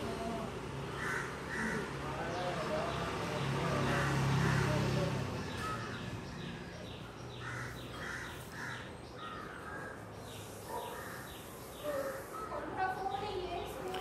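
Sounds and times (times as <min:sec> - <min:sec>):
crows cawing: 0:00.9 - 0:02.3, 0:03.8 - 0:04.9, 0:07.3 - 0:10.1, 0:10.8 - 0:12.6.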